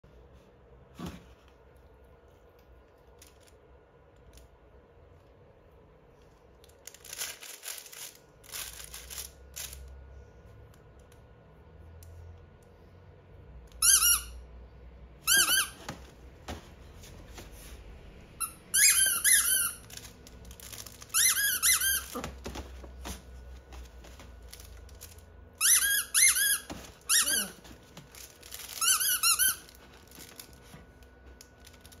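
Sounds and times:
papery crackling: 6.2 - 9.9, 19.6 - 25.3, 26.7 - 32.0
dog toy squeaks: 13.8 - 14.4, 15.2 - 15.8, 18.4 - 19.9, 21.0 - 22.4, 25.6 - 27.6, 28.6 - 29.8.

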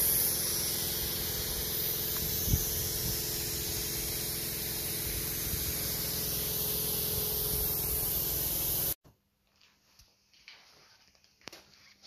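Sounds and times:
sandblaster hissing: 0.0 - 9.0.

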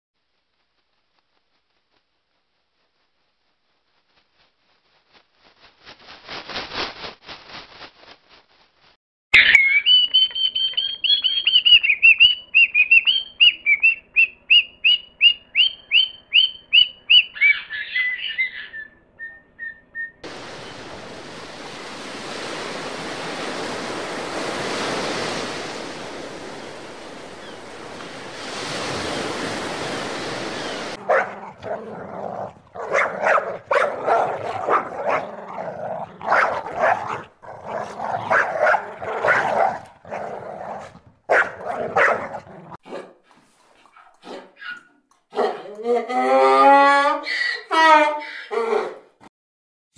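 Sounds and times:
cockatoo calling: 9.4 - 20.2
dogs barking: 31.0 - 43.2, 43.9 - 45.8.

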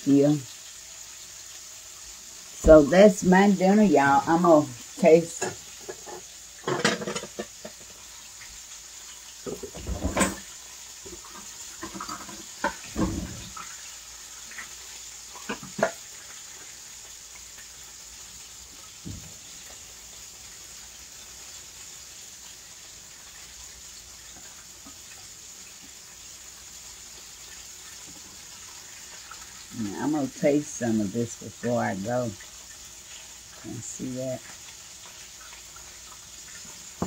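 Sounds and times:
faint steady hiss: 0.0 - 37.0
dishes and utensils clattering: 5.3 - 8.0, 9.4 - 10.5, 11.1 - 13.7, 15.4 - 16.0.

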